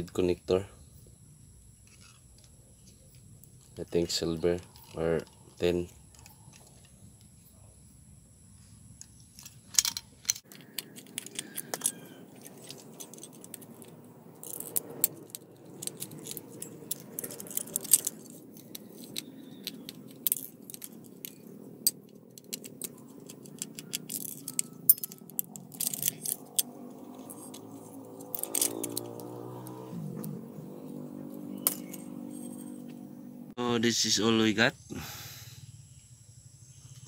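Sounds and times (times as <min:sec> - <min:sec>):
small metal parts clinking: 0:09.0 - 0:32.9
screwdriver clicking and scraping: 0:09.4 - 0:30.4.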